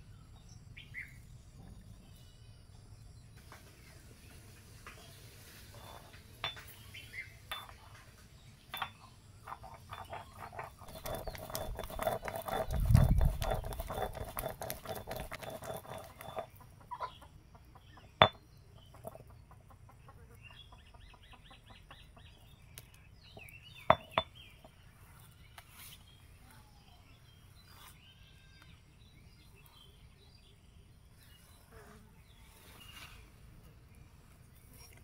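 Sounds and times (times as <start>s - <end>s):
stone roller scraping: 5.6s - 6.8s, 7.5s - 7.8s, 8.7s - 16.6s, 18.2s - 19.3s, 23.8s - 24.8s
hens clucking: 15.9s - 18.2s.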